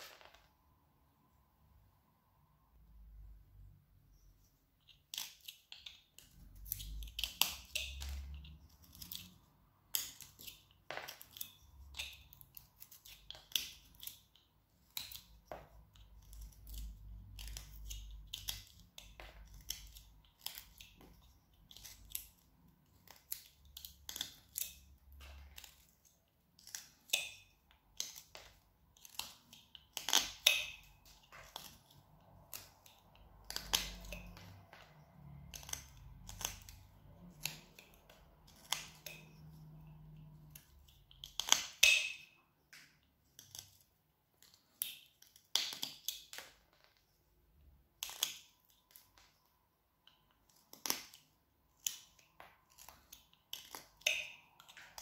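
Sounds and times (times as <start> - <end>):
knife cutting wood shavings: 5.1 - 15.3, 28.0 - 42.1.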